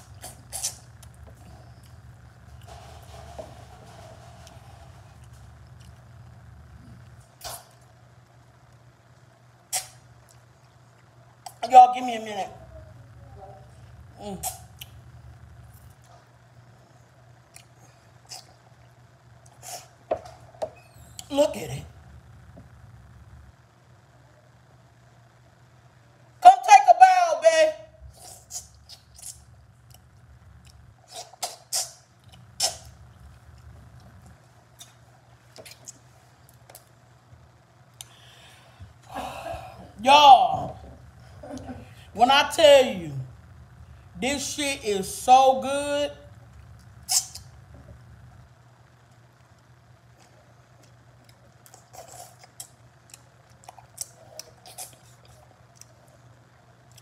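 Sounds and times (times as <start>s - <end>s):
faint steady hum: 0.0s - 57.0s
wet eating smacks and sucking: 0.1s - 1.1s, 7.4s - 7.9s, 9.7s - 10.4s, 30.7s - 33.0s, 47.0s - 47.5s
person chewing and lip smacking: 17.5s - 18.6s, 28.2s - 36.9s, 46.6s - 47.5s, 50.2s - 56.2s.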